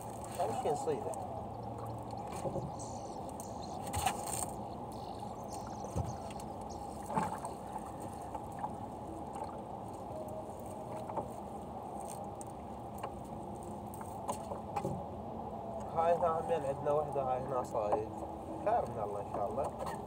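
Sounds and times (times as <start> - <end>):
water drips: 0.0 - 9.6
steady background rush: 0.0 - 19.3.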